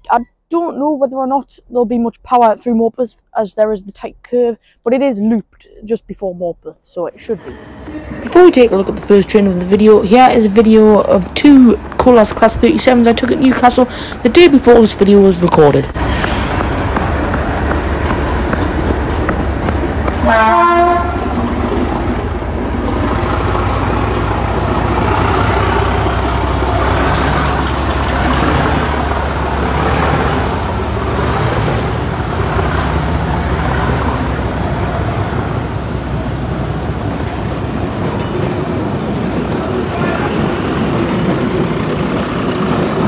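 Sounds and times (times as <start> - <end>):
diesel locomotive engine rumble: 7.1 - 43.0
train horn blast: 20.2 - 21.4.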